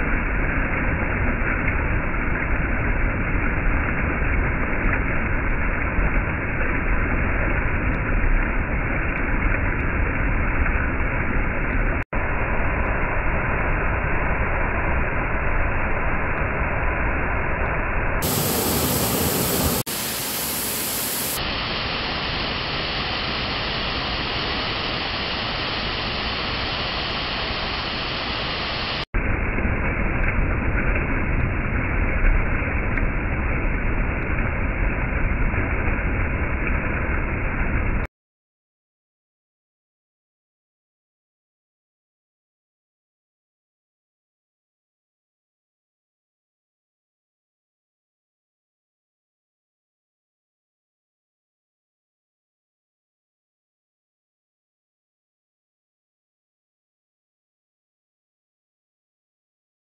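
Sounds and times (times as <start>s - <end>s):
water rushing over rocks: 0.0s - 38.1s.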